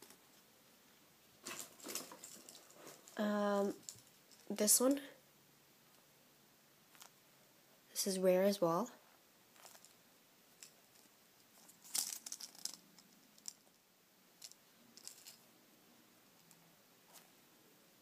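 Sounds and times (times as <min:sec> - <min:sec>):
foam toys rustling and crinkling: 0:01.4 - 0:04.8.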